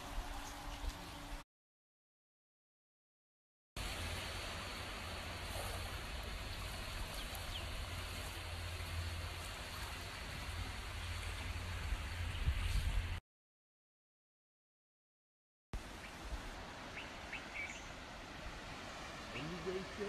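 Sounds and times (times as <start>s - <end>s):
wind rumbling on microphone: 3.8s - 13.2s.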